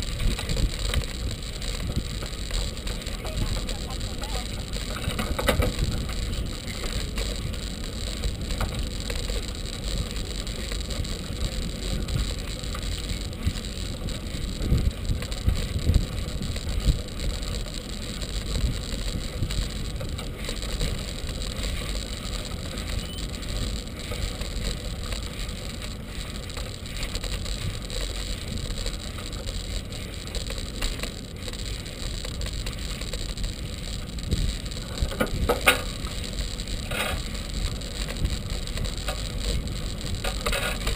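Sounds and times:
wind on microphone: 0.0 - 8.8, 13.3 - 17.6
bicycle bumps: 0.0 - 40.9
bicycle tyres rolling: 0.0 - 40.9.

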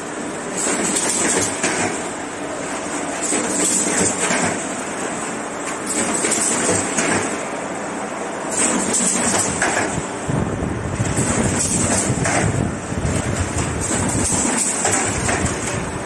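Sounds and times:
machine mechanical clatter: 0.4 - 2.2, 2.8 - 7.5, 8.5 - 10.2, 10.9 - 16.0
machine knocks: 11.1 - 15.8.

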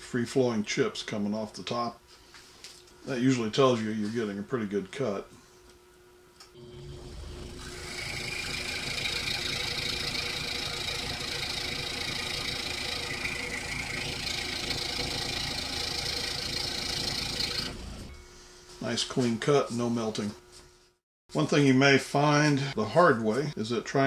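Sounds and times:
scroll saw motor rumble: 6.6 - 18.4.

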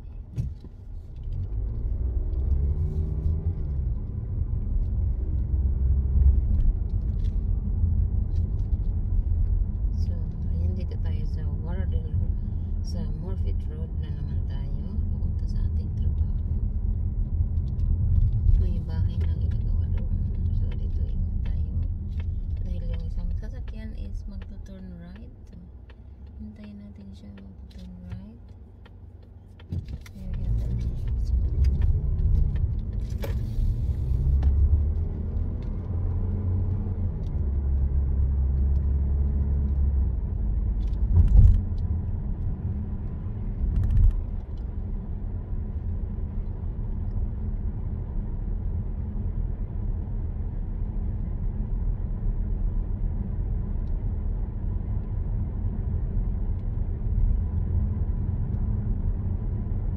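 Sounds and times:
car engine and tyre noise: 0.0 - 59.9.

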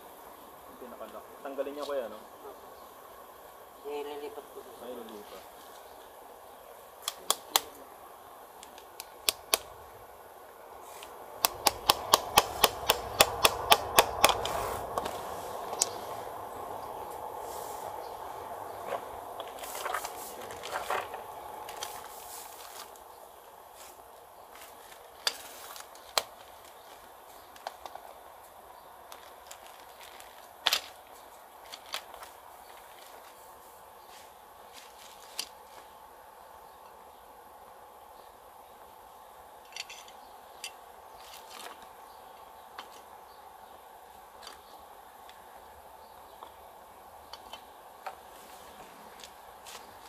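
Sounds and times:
plastic wrap crinkling: 18.8 - 23.1, 23.8 - 28.3, 29.0 - 33.7, 34.3 - 36.0.

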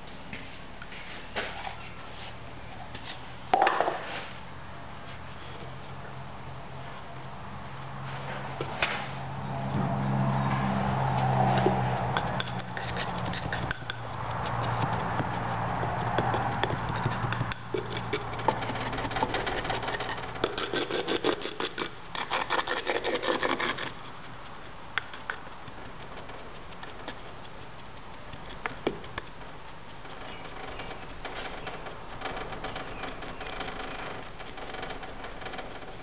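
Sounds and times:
steady low hum: 0.0 - 36.0
sand scraping on wood: 9.9 - 36.0
wooden rammer tapping sand: 11.6 - 36.0.

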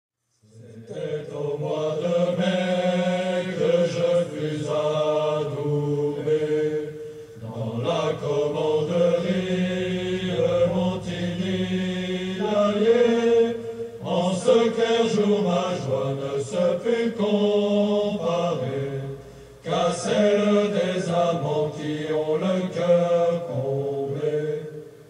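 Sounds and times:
low voices chanting: 0.4 - 25.0.

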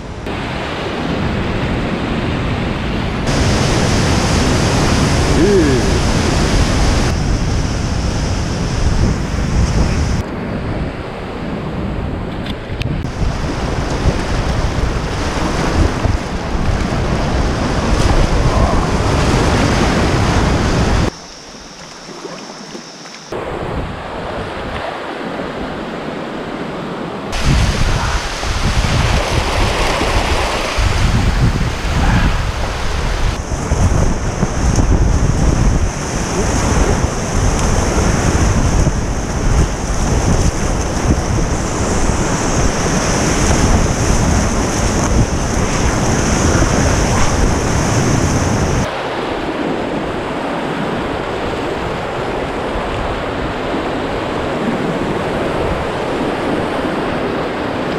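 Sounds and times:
wind buffeting microphone: 0.0 - 21.2, 27.3 - 57.8
river rapids rushing: 3.2 - 7.2, 27.4 - 33.5.

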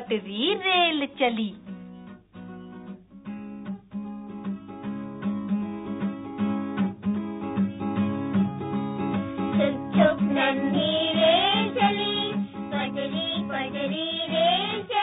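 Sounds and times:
strummed guitar: 0.6 - 15.0.

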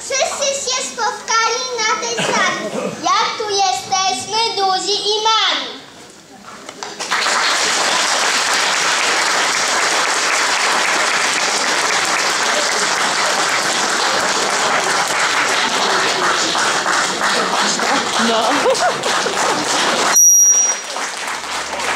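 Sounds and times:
audience applauding: 6.8 - 21.9.

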